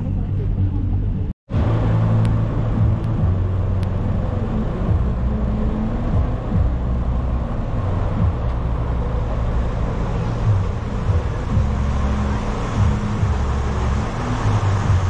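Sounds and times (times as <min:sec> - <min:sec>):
boat engine droning: 0:00.0 - 0:15.0
constant rushing noise: 0:00.0 - 0:15.0.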